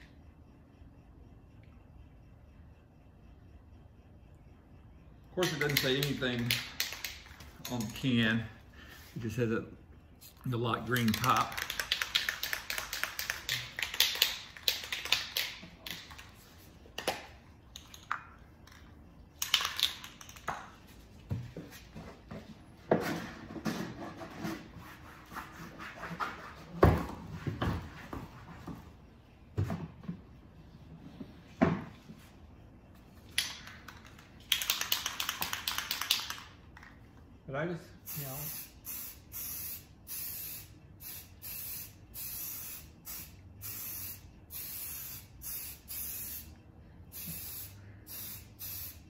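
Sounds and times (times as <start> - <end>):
spray can ball rattling: 10.8 - 17.2, 19.4 - 20.7, 33.4 - 36.6, 38.1 - 46.5.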